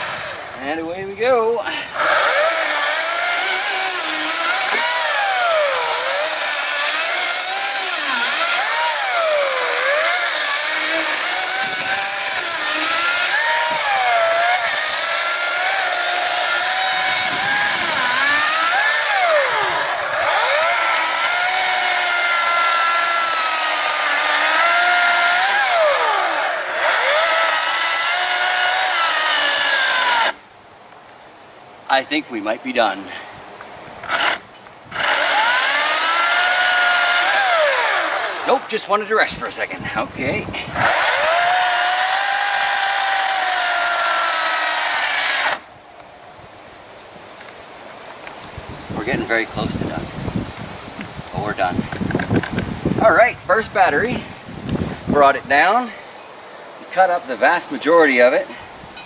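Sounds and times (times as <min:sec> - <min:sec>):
chainsaw cutting log: 0:00.0 - 0:00.9, 0:01.9 - 0:30.4, 0:34.0 - 0:39.4, 0:40.7 - 0:45.7.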